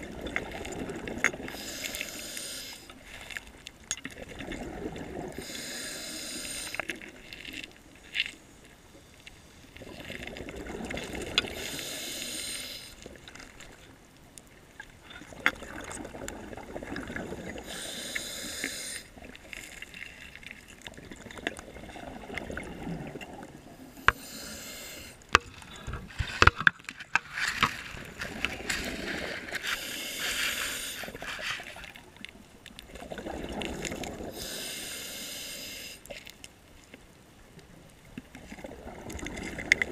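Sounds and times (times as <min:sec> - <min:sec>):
exhaled bubbles: 0:00.0 - 0:01.6, 0:04.1 - 0:06.1, 0:09.8 - 0:12.0, 0:15.0 - 0:19.6, 0:20.8 - 0:24.1, 0:32.8 - 0:34.6, 0:38.4 - 0:39.9
regulator breathing underwater: 0:01.4 - 0:03.0, 0:05.3 - 0:07.0, 0:11.5 - 0:13.0, 0:17.2 - 0:19.2, 0:23.9 - 0:26.5, 0:28.8 - 0:31.7, 0:34.2 - 0:36.1.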